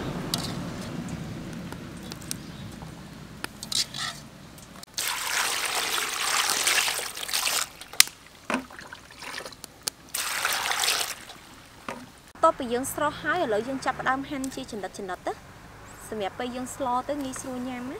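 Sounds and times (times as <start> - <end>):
water pouring and splashing: 4.9 - 12.3.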